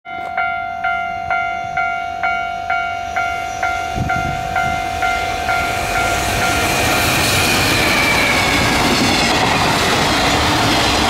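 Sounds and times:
level crossing bell ringing: 0.1 - 6.6
freight train rumble: 0.1 - 11.0.

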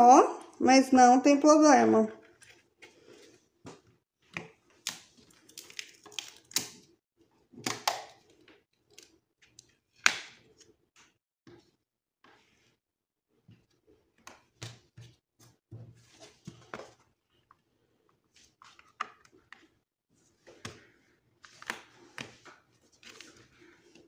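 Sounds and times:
paper rustling: 20.5 - 24.0.

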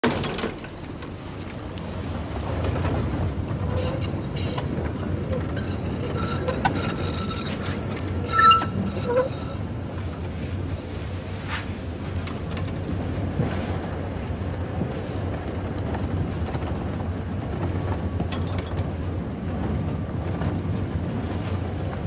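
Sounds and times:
metro train rumble: 0.0 - 22.0
thin high squeals: 5.6 - 9.6.

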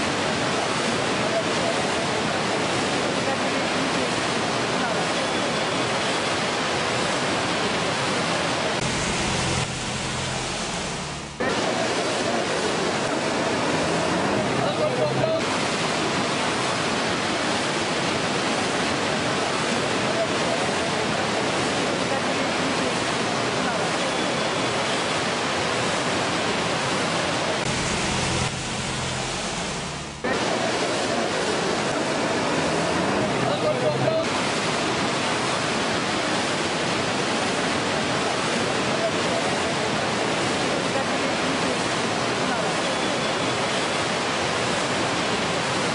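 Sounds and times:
heavy rain and rushing floodwater: 0.0 - 45.9
low hum: 8.8 - 11.4, 27.6 - 30.8.

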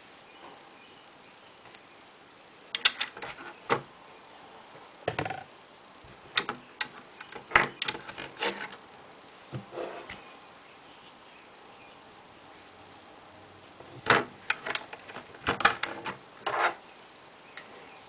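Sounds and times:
plastic bricks clicking: 2.8 - 3.4, 13.9 - 16.2.

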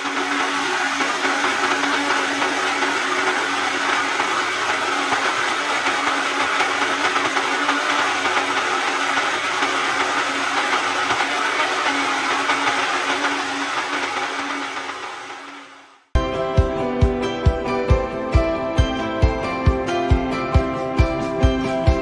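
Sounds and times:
electric blender motor humming: 0.0 - 16.1.

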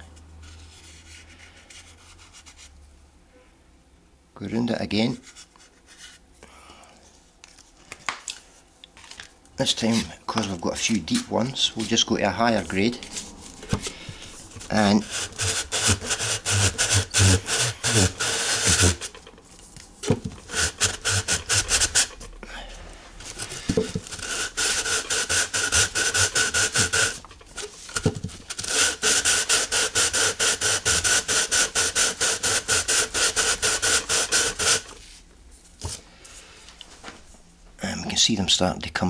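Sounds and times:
tube rubbing on sandpaper: 11.1 - 19.3, 20.0 - 22.3, 23.2 - 35.2.

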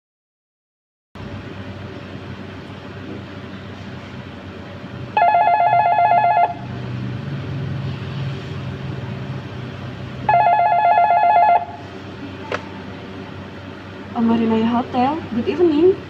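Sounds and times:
telephone warbling ring: 5.2 - 6.7, 10.3 - 11.8.

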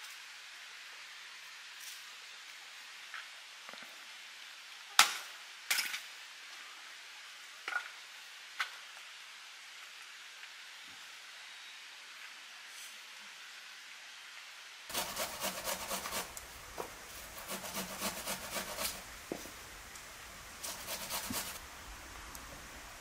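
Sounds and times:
outdoor background hiss: 0.0 - 23.0.

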